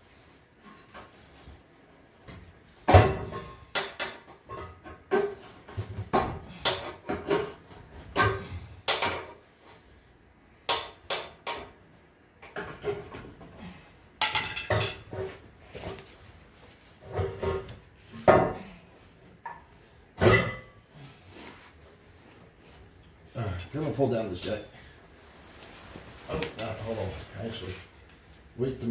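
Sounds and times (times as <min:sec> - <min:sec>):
metallic clanks and knocks: 0:14.2 - 0:15.4.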